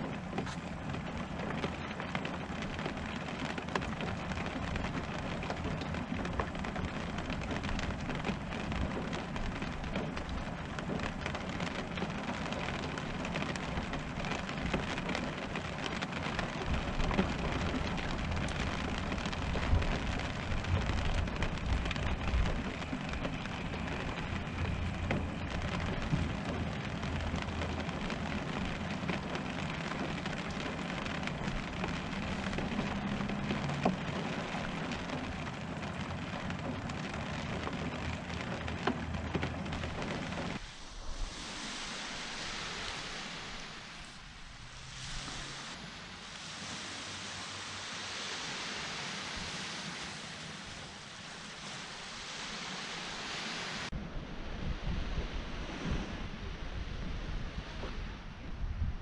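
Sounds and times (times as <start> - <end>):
rain pattering on a roof: 0.0 - 54.0, 56.8 - 59.0
low rumble: 16.3 - 46.4, 53.9 - 59.0.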